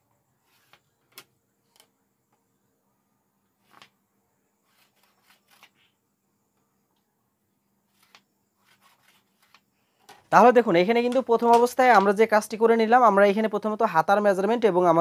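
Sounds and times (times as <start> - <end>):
wooden ruler tapping and scraping: 0.5 - 2.4, 8.0 - 10.3, 11.0 - 12.2.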